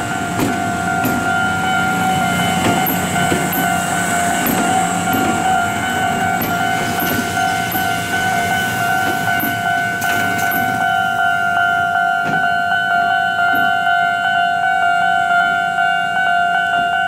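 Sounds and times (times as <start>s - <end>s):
wheels clicking over rail joints: 0.0s - 11.0s
electric train high-pitched whine: 0.0s - 17.0s.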